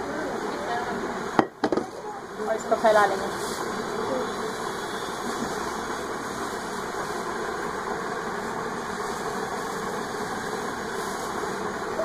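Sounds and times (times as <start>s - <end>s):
machine-like hum: 0.0s - 12.0s.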